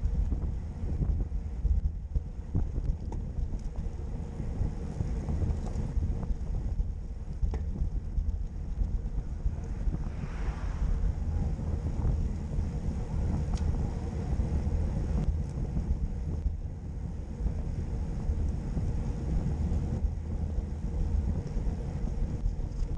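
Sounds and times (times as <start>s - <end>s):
wind buffeting microphone: 0.0s - 22.9s
bicycle tyre hiss: 9.1s - 15.1s.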